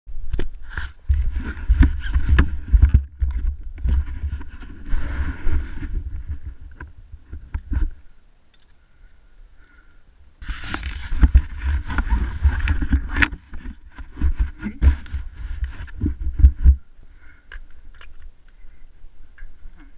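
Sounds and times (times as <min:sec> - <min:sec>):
rumbling and rubbing on camera: 0:00.5 - 0:08.1, 0:10.4 - 0:19.9.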